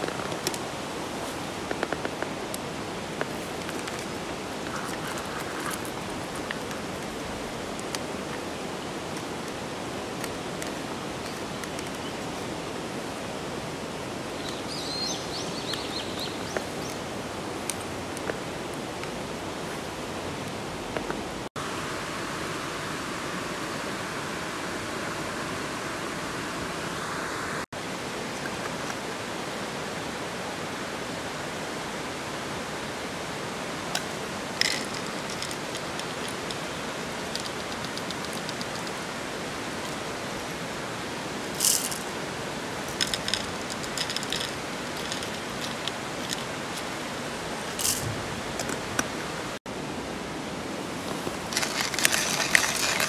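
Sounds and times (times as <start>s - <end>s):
water rushing: 0.0s - 53.0s
sharp drip-like ticks: 33.9s - 39.0s.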